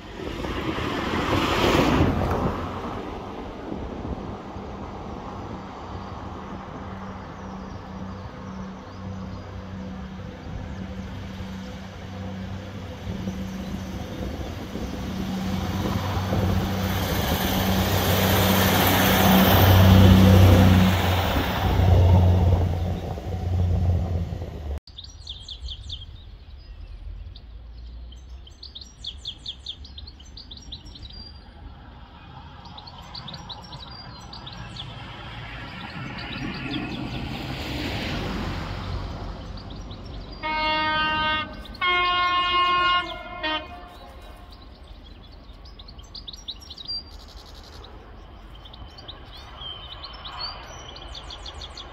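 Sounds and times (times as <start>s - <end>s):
train passing: 0.0s - 24.8s, 31.4s - 51.9s
birds chirping and singing: 39.4s - 51.9s.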